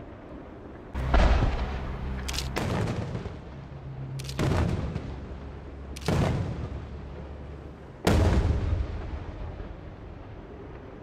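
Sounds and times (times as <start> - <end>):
firework bangs with rumbling echo: 8.1 - 9.6.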